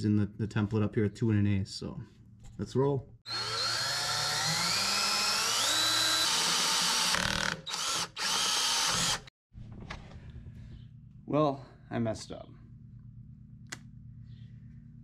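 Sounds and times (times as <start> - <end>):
cordless drill whining through steel: 3.3 - 9.3.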